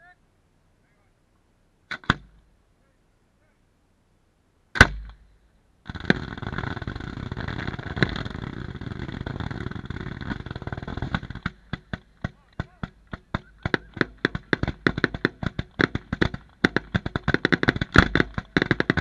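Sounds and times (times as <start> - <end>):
firework crackling: 5.9 - 19.0
firework shell burst: 5.9 - 19.0
sharp firework report: 5.9 - 19.0.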